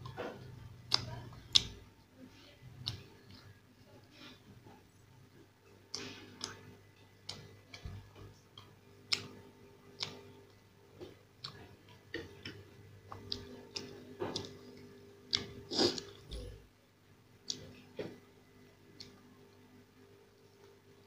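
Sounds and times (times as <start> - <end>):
mouth smacks while chewing: 15.3 - 16.5.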